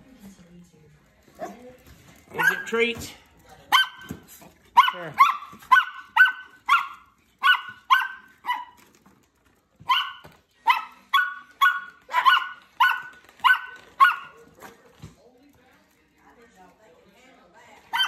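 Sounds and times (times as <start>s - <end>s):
small dog barking: 2.4s - 2.7s, 3.7s - 8.8s, 9.8s - 14.4s.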